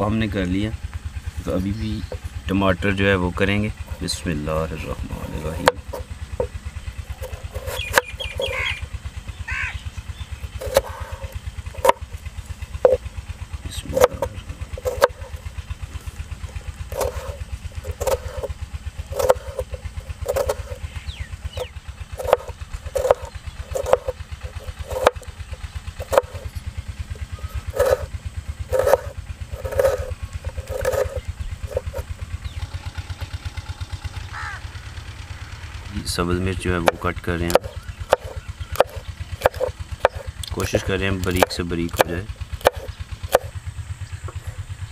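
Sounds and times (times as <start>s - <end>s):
low engine drone: 0.0s - 44.9s
knife chopping on wooden board: 5.2s - 6.5s, 7.2s - 8.6s, 10.6s - 12.0s, 13.9s - 15.4s, 16.9s - 18.5s, 19.1s - 20.8s, 21.6s - 25.2s, 26.0s - 26.5s, 27.7s - 28.1s, 28.7s - 32.0s, 36.8s - 43.5s.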